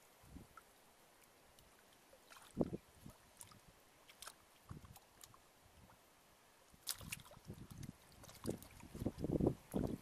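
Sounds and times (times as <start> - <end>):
hands sloshing in shallow water: 1.6 - 6.0, 6.8 - 10.0.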